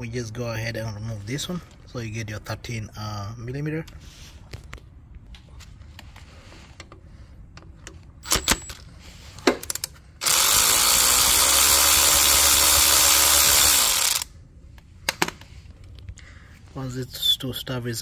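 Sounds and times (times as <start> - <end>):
power ratchet whirring: 9.7 - 14.3.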